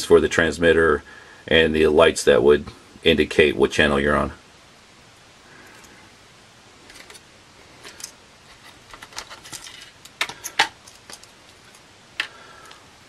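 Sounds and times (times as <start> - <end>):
plastic parts clicking and rattling: 6.9 - 7.2, 7.8 - 12.8.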